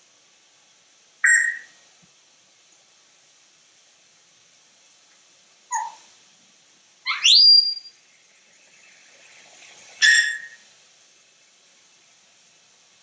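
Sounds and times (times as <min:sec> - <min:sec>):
parrot whistling and calling: 0:01.2 - 0:01.8, 0:05.7 - 0:06.0, 0:07.0 - 0:07.9, 0:10.0 - 0:10.6.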